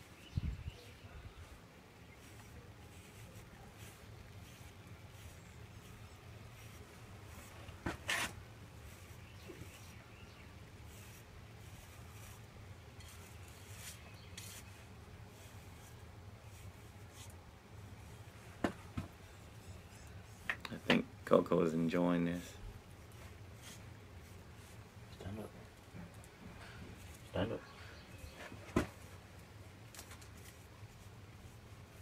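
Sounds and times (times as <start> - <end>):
rustle: 0.0 - 32.0
brush strokes through dog fur: 0.1 - 18.5, 21.2 - 25.9, 30.2 - 32.0.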